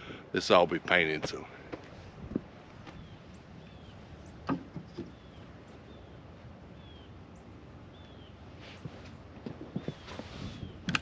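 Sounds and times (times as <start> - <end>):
bird chirping: 2.8 - 8.5
wooden knocks: 4.4 - 5.2.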